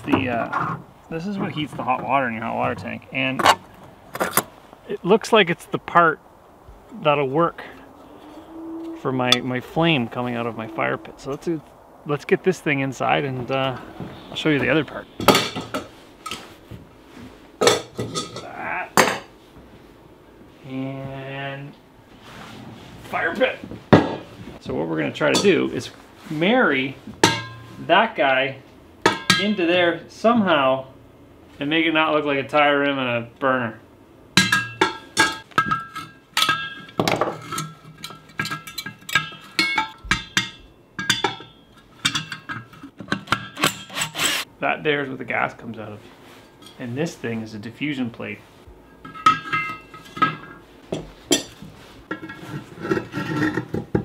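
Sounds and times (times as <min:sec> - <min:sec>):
metallic clinks and knocks: 0:34.4 - 0:43.9, 0:49.0 - 0:53.0
metal parts clanking on wood: 0:34.4 - 0:44.4.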